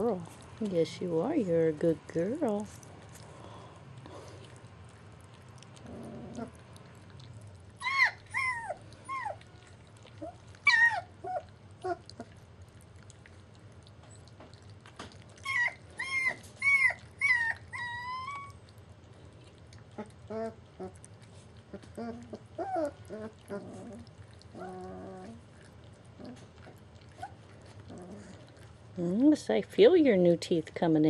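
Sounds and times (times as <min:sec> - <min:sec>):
puppies whining: 0:05.2 - 0:29.4.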